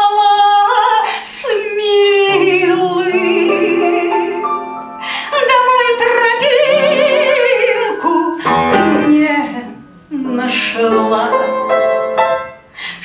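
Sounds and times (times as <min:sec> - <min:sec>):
woman singing folk song: 0:00.0 - 0:04.5, 0:05.3 - 0:11.5
upright piano accompaniment: 0:01.5 - 0:13.0.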